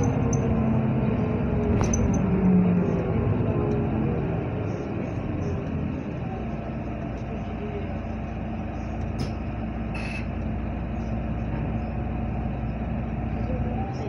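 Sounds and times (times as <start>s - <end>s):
bus engine and road drone: 0.0s - 14.0s.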